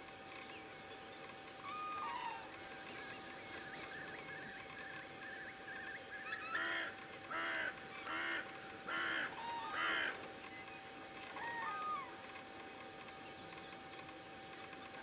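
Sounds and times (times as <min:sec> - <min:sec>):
geese honking: 0:06.3 - 0:10.2.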